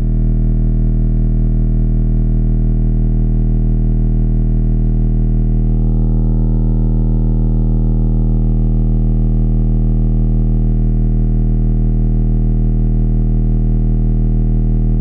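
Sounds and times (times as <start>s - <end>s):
deep bass tone from subwoofers: 0.0s - 15.0s
distorted buzz: 3.8s - 12.2s.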